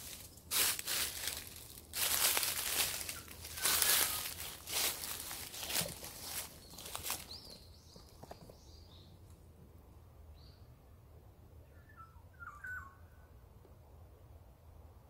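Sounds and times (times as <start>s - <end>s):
songbird chirping: 0.0s - 9.4s, 11.6s - 13.4s.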